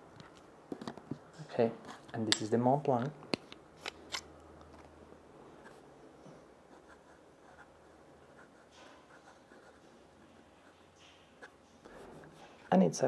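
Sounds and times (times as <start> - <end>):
fountain pen scratching on paper: 6.7 - 9.8.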